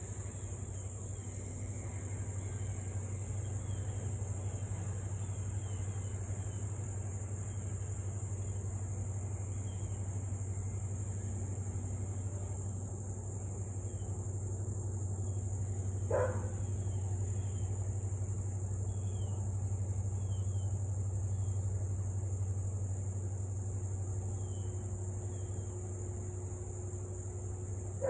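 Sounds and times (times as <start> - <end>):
dog bark: 16.1 - 16.6.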